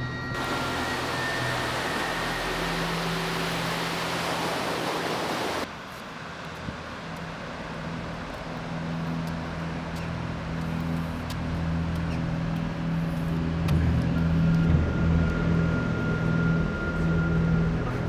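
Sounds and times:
high sustained tone: 0:00.0 - 0:05.7
low droning music: 0:00.0 - 0:18.0.

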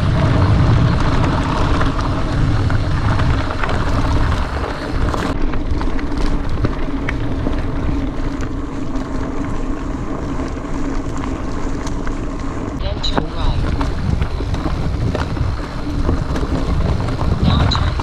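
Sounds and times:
bike clicks and rattles: 0:00.0 - 0:18.0
bike tyres rolling on gravel: 0:00.0 - 0:18.0
low hum: 0:00.0 - 0:18.0
wind buffeting microphone: 0:00.0 - 0:18.0.

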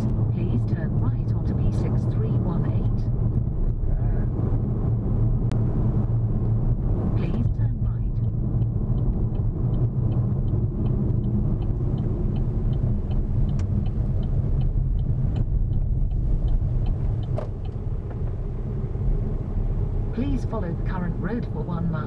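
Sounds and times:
car rumbling on road: 0:00.0 - 0:22.0
light regular ticking: 0:05.3 - 0:19.5.

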